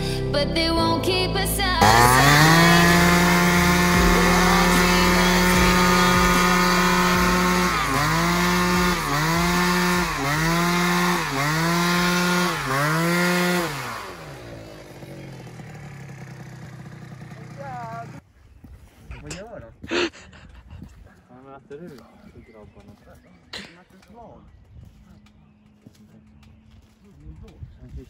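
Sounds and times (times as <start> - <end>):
two-stroke scooter engine revving: 1.8 - 18.2.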